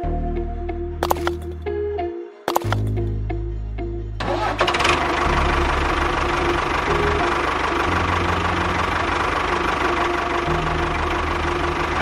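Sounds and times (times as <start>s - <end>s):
clicks: 1.0s - 1.6s, 2.5s - 3.0s.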